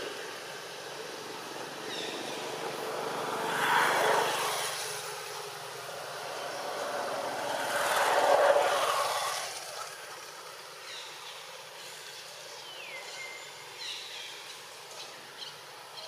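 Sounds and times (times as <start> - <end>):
motor vehicle passing: 0.5 - 10.8.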